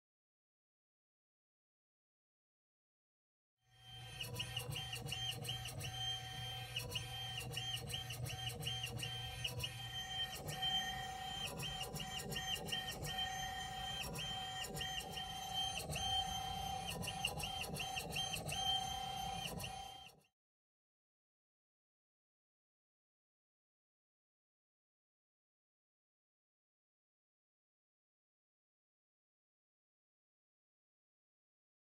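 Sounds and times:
motor whine: 3.8 - 20.2.

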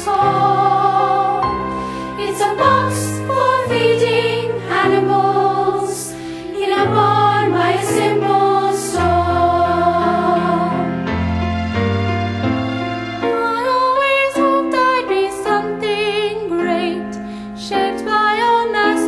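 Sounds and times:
voices singing: 0.0 - 11.0
instrumental accompaniment: 0.0 - 15.8.

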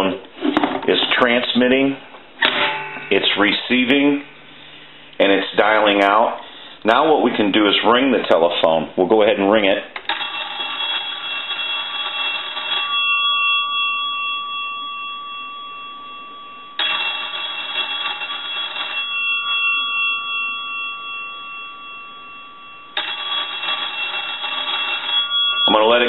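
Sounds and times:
telephone bells ringing: 10.0 - 26.0.

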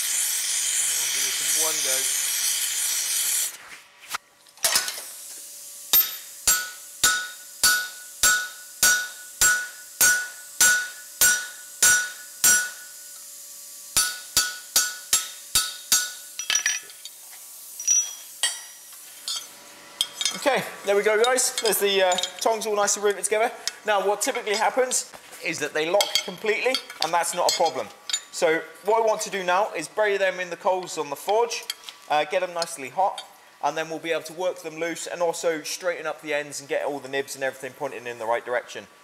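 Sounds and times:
torch hissing: 0.0 - 3.6
hammer strikes on metal ringing: 6.0 - 13.0, 14.0 - 16.3.

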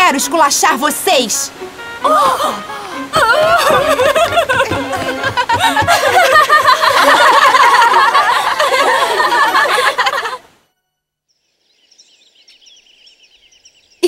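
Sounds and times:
music: 0.0 - 6.8
young women laughing: 2.1 - 10.4.

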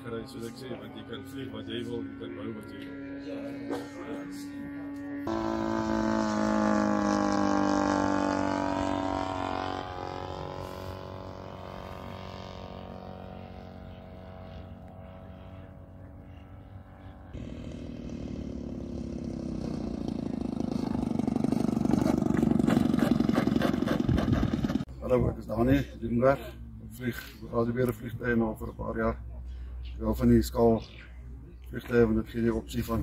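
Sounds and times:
model aeroplane engine flying past: 0.0 - 24.9.

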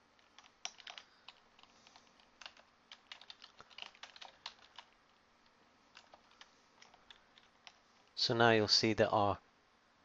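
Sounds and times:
typing on computer keyboard: 0.2 - 5.0, 6.0 - 7.8.

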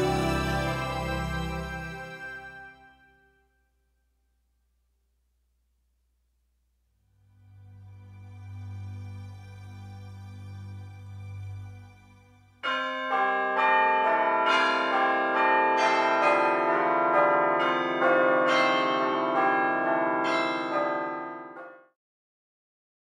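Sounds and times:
church bells pealing: 0.0 - 2.8, 12.6 - 21.8.

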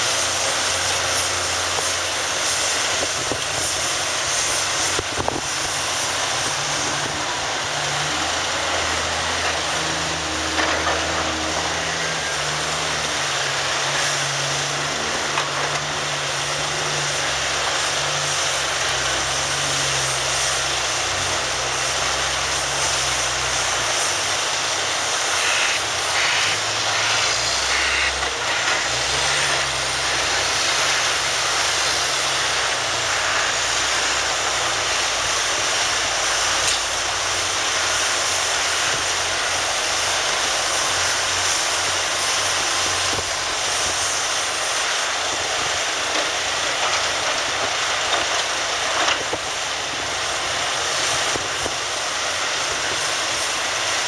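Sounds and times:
diesel engines running: 0.0 - 54.0.

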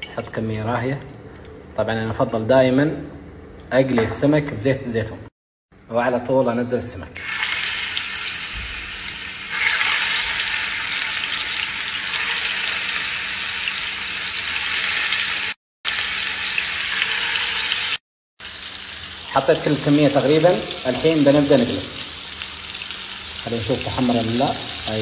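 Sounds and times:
fish sizzling in frying pan: 7.2 - 19.3, 22.0 - 23.5.

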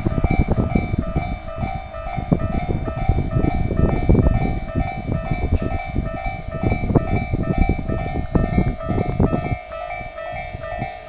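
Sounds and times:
level crossing warning bell: 0.0 - 11.0
train wheels rumbling on rails: 0.0 - 11.0.

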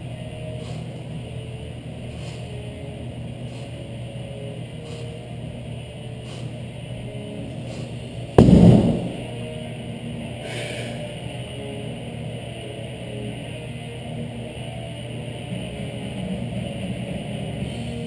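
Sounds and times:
steady low hum: 8.4 - 9.4.

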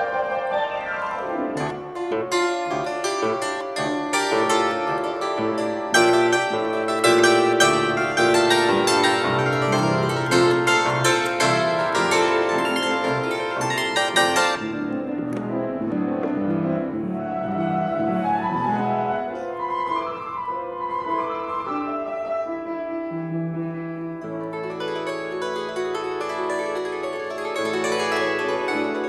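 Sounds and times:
piano playing: 0.0 - 29.0
bandura playing: 1.5 - 15.4, 24.4 - 29.0.

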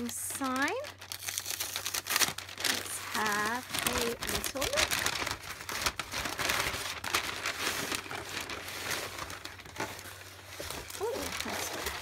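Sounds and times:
paper wrapping rustling: 0.0 - 12.0.

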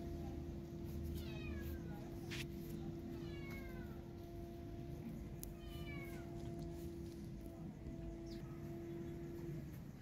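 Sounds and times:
steady low hum: 0.0 - 10.0
cat meowing: 1.2 - 2.0, 5.6 - 6.4.

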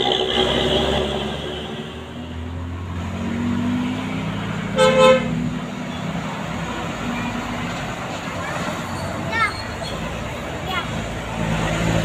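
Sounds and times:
diesel engine rumbling: 0.0 - 12.0
horn double toot: 4.7 - 5.4.

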